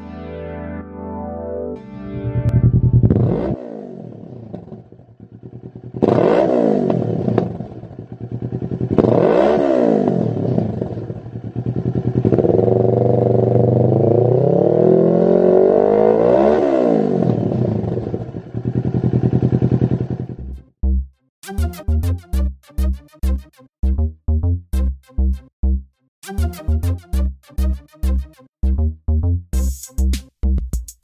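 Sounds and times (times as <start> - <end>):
motorcycle engine revving: 2.1 - 20.5.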